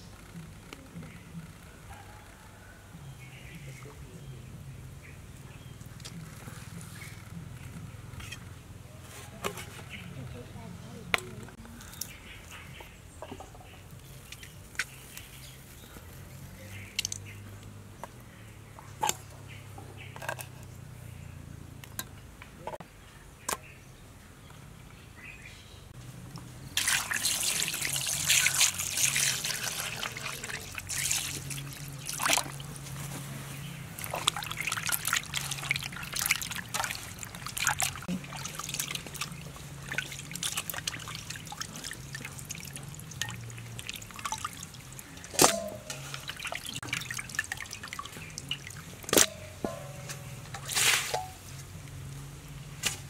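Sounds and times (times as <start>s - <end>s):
water running into metal basin: 26.8s - 33.0s, 33.9s - 51.4s
splashing and squelching meat: 26.8s - 51.2s.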